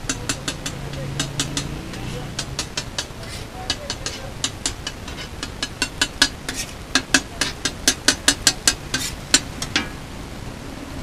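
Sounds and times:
metal spatula clinking on griddle: 0:00.0 - 0:10.0
frying hiss: 0:00.0 - 0:11.0.

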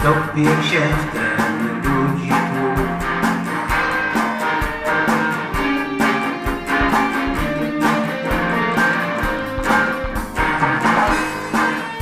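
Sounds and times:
pop-rock instrumental music: 0:00.0 - 0:12.0.

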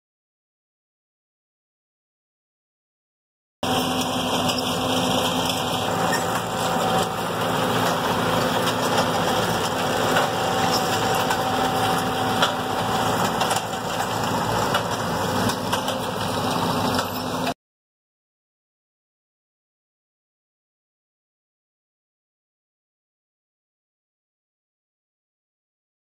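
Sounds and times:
harvester machinery: 0:03.6 - 0:17.6
tractor engine running: 0:03.6 - 0:17.6.

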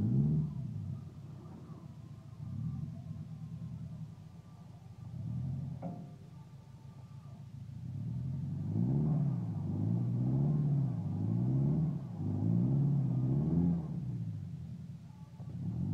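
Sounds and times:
truck engine revving: 0:00.0 - 0:03.0, 0:07.9 - 0:14.4.

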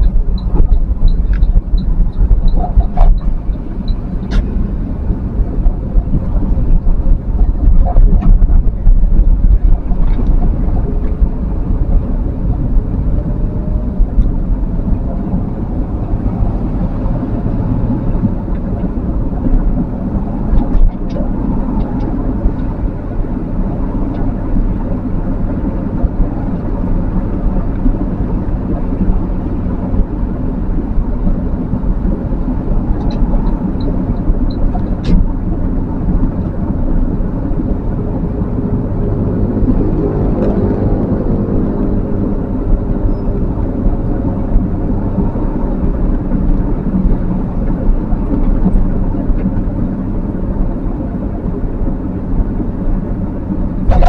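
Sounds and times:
vehicle engine and road rumble: 0:00.0 - 0:54.0.

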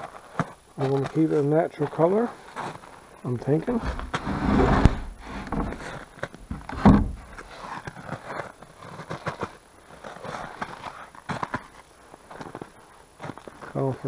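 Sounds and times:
handling knocks and scuffs: 0:03.4 - 0:09.5
wooden doors knocking shut: 0:03.7 - 0:07.5.

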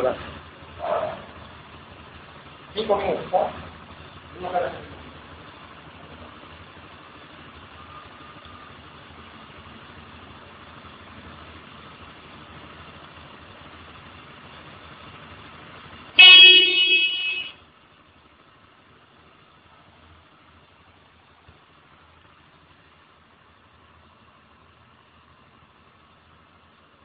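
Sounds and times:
motorcycle engine idling: 0:00.0 - 0:27.0
motorcycle horn blast: 0:16.2 - 0:17.6.

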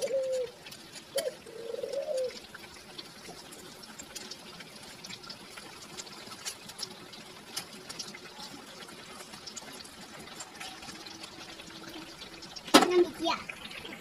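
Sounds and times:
dove cooing: 0:00.0 - 0:02.5
deep-frying sizzling and popping: 0:00.0 - 0:14.0.

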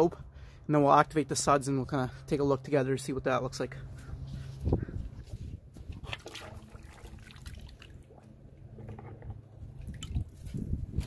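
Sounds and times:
water sloshing in plastic bucket: 0:05.7 - 0:11.0
small water splashes: 0:05.8 - 0:08.4, 0:09.7 - 0:10.7.

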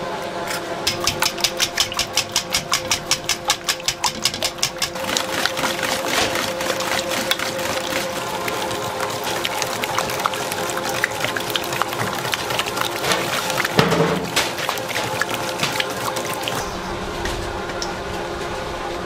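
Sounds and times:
whisk clinking against metal bowl: 0:00.9 - 0:08.1
whisk swishing eggs: 0:00.9 - 0:16.7.

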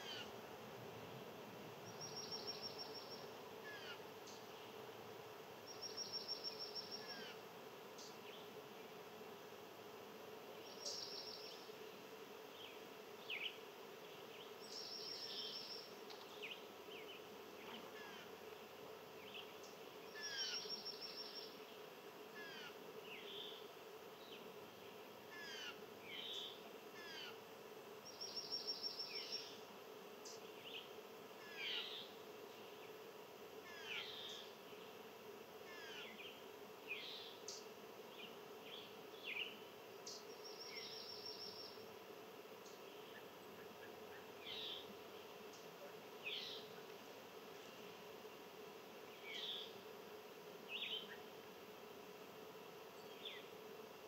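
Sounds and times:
songbirds chirping: 0:10.3 - 0:22.2, 0:22.9 - 0:35.4, 0:36.0 - 0:53.9.

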